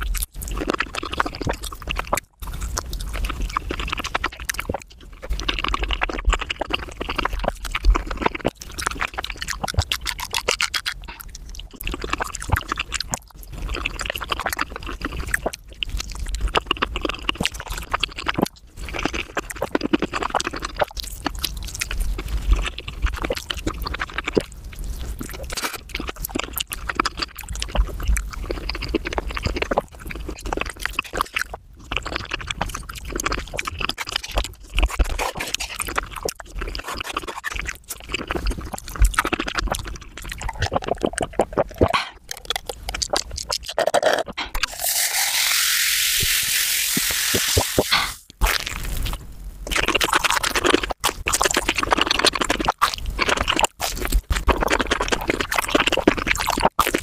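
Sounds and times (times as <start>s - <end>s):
sped-up chewing: 0.0s - 44.8s, 47.0s - 57.0s
mouth smacks: 38.7s - 44.7s, 47.4s - 48.6s.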